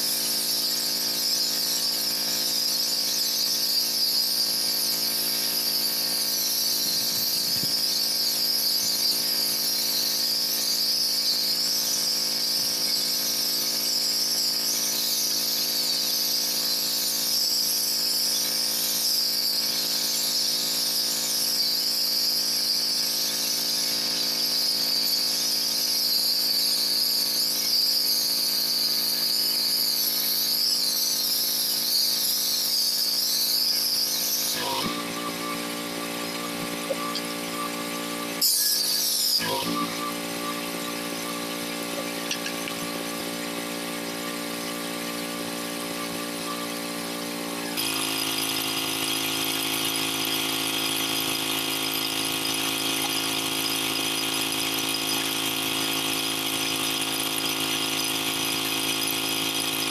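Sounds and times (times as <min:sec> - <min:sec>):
pressure washer motor drone: 0:00.0 - 0:59.9.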